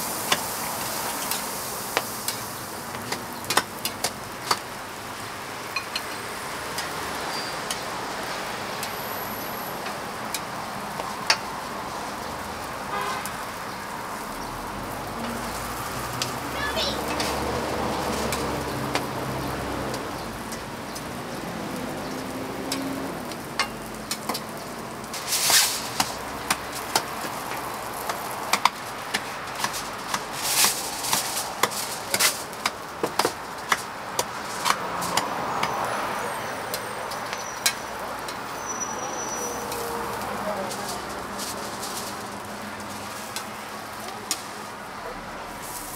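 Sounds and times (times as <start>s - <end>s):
food sizzling on a griddle: 0.0s - 45.9s
cooking utensils clicking: 5.8s - 7.0s.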